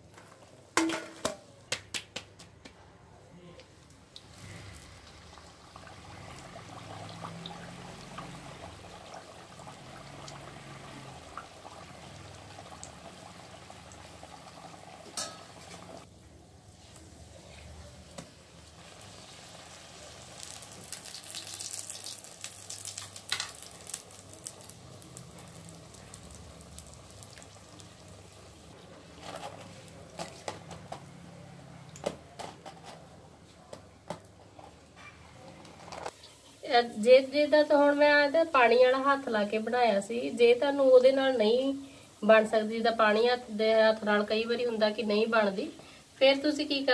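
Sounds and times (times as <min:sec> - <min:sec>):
food sizzling in hot oil: 0:04.1 - 0:17.3, 0:18.0 - 0:30.7.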